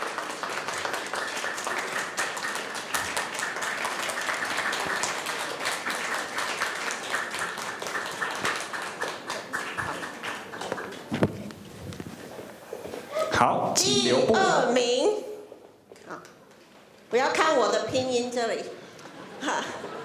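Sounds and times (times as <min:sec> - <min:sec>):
audience applauding: 0:00.0 - 0:11.5.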